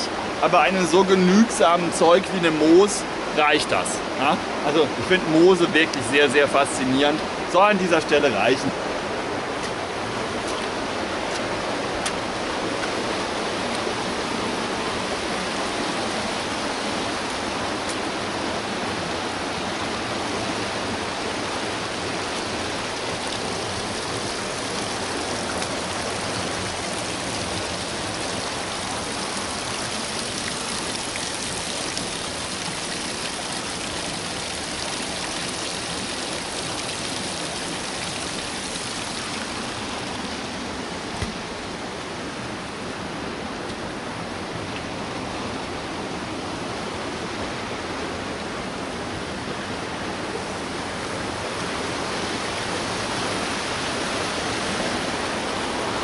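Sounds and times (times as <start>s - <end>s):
water rushing over rocks: 0.0s - 56.0s.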